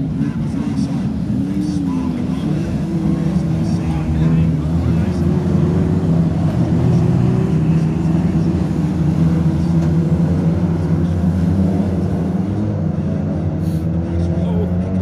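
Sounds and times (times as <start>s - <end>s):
racing car engines: 0.0s - 15.0s.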